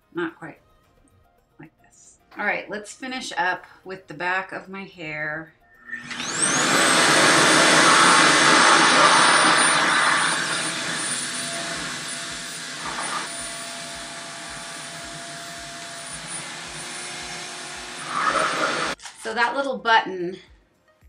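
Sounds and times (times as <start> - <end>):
hair dryer suction rushing with whine: 5.9 - 19.0.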